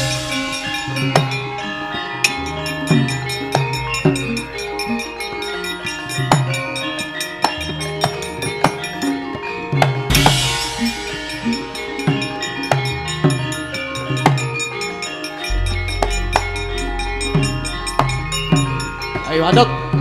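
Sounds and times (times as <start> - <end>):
kendang drum strokes: 0.0 - 5.2, 9.8 - 14.7, 15.4 - 20.0
gamelan playing fast music: 0.0 - 20.0
deep low tone: 15.5 - 19.2.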